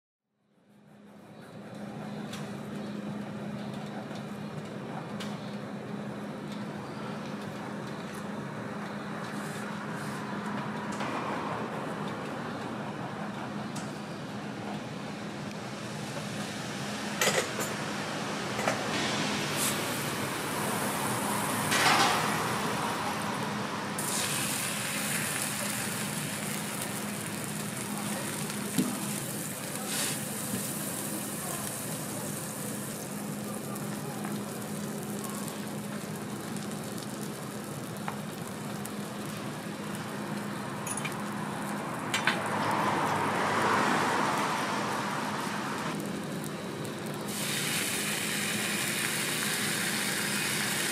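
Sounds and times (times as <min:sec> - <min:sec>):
food sizzling on a griddle: 0:19.0 - 0:40.6, 0:47.1 - 0:50.9.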